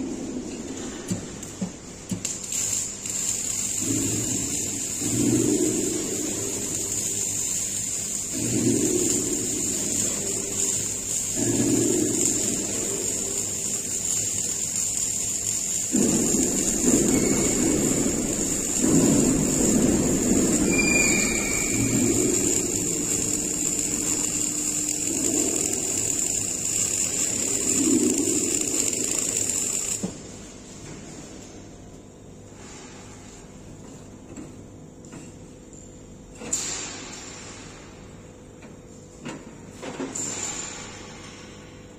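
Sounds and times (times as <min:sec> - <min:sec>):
welding arc crackling and sizzling: 0:00.0 - 0:41.9
steady high-pitched whine: 0:02.4 - 0:31.7.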